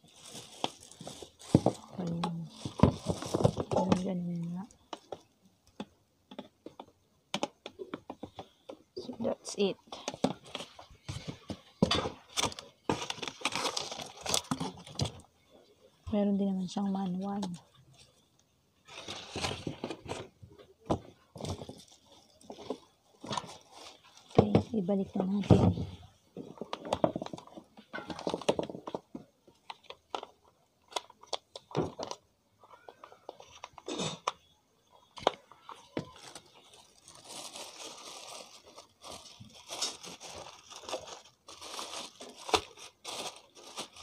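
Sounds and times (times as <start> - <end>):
plastic packaging crinkling: 0.0 - 5.3, 9.4 - 15.3, 16.9 - 20.3, 21.3 - 25.4, 26.4 - 32.2, 35.1 - 44.0
plastic clicks and rustles: 26.4 - 44.0.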